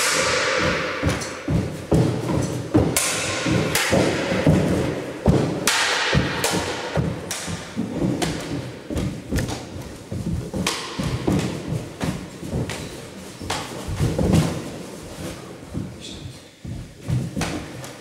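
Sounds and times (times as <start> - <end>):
weapons striking shields: 0.0 - 9.7, 10.5 - 12.9
feet stamping on wooden floor: 0.0 - 18.0.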